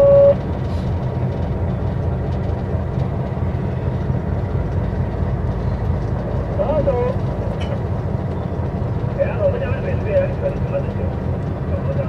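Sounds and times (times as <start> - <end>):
locomotive engine rumble: 0.0 - 12.0
rail and wheel noise: 0.0 - 12.0.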